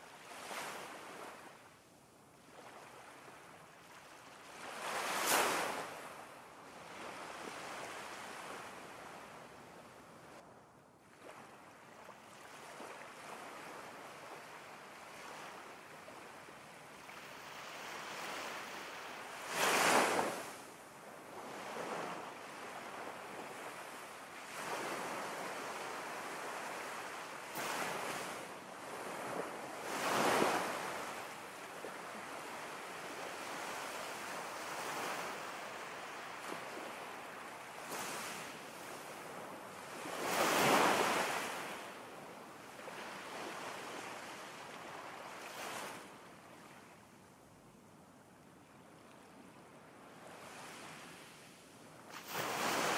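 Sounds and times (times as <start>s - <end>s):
ocean waves breaking: 52.1s - 52.9s.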